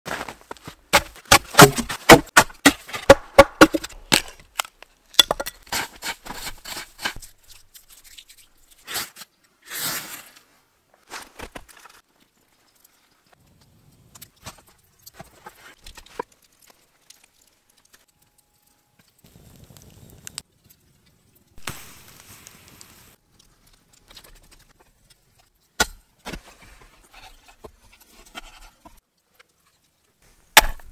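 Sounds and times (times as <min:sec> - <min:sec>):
wood being chopped: 0:00.9 - 0:05.6, 0:30.6 - 0:30.9
tinder crackling as flame catches: 0:10.0 - 0:26.5.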